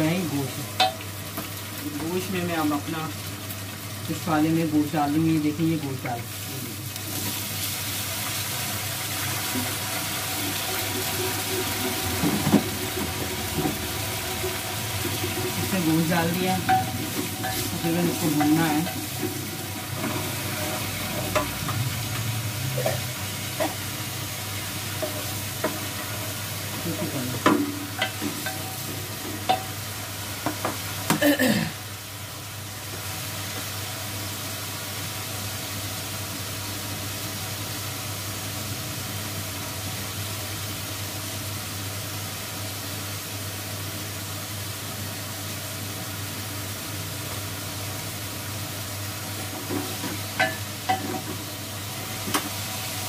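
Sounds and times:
meat sizzling in a pot: 0.0s - 53.0s
spoon knocking against pots: 16.6s - 17.7s, 50.4s - 51.3s.

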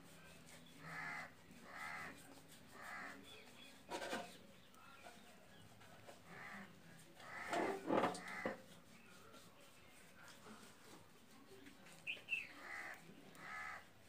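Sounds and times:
crow cawing: 0.9s - 2.1s, 2.8s - 3.2s, 6.3s - 8.6s, 12.6s - 13.9s.

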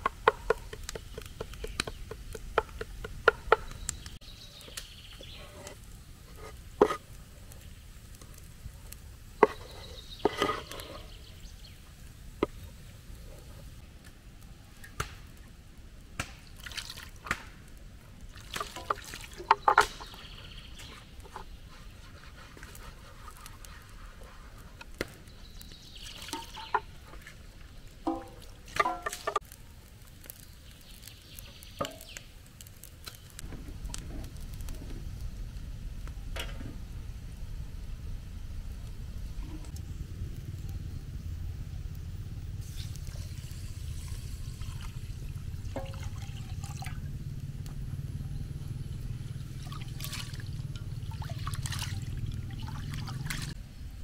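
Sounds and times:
liquid splashing: 42.7s - 47.0s, 49.6s - 53.6s.

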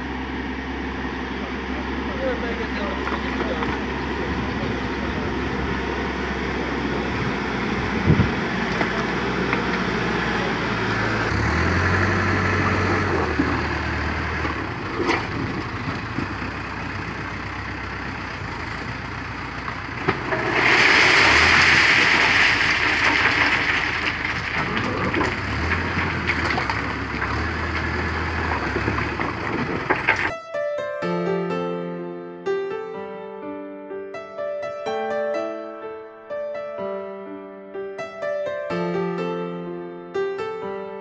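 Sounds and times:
diesel engine revving: 0.0s - 30.3s.

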